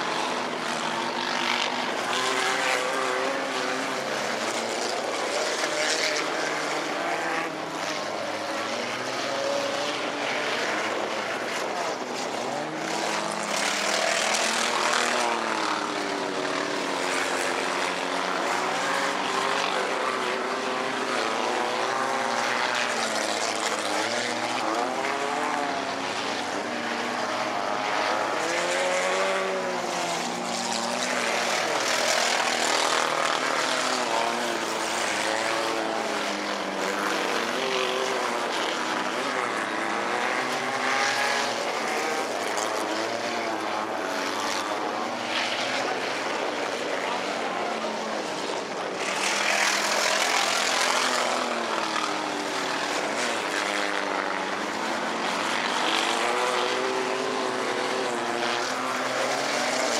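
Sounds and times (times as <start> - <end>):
race car engines revving: 0.0 - 59.9.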